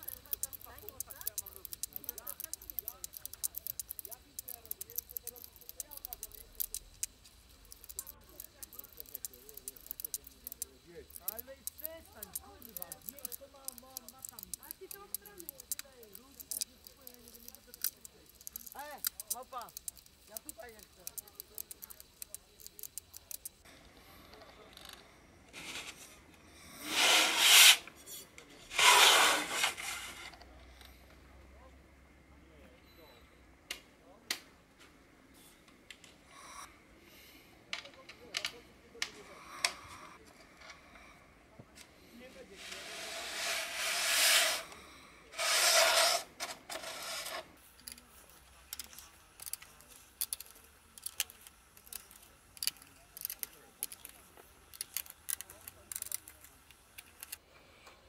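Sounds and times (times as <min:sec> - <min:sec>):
screwdriver clicking on screws: 0:00.0 - 0:23.6, 0:48.7 - 0:57.4
plastic scraping and rasping: 0:26.9 - 0:30.4, 0:45.4 - 0:48.0, 0:48.8 - 0:57.4
case scraping against cardboard: 0:28.7 - 0:30.3, 0:45.4 - 0:47.5.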